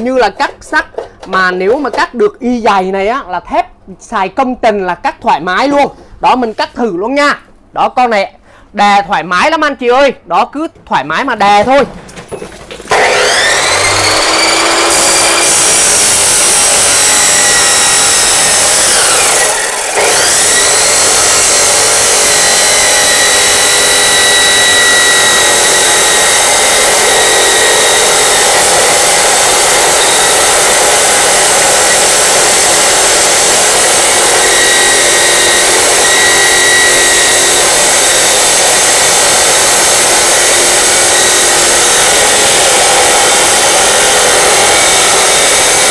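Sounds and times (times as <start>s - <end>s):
saw disc grinding steel: 12.8s - 45.9s
cut-off saw whining: 12.9s - 45.9s.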